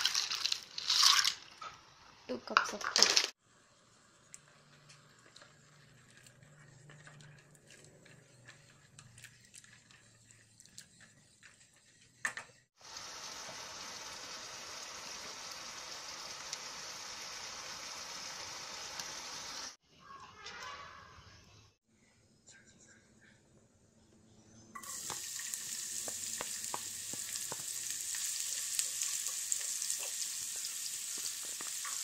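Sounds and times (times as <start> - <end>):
water boiling in a pot: 12.7 - 19.8, 24.8 - 32.0.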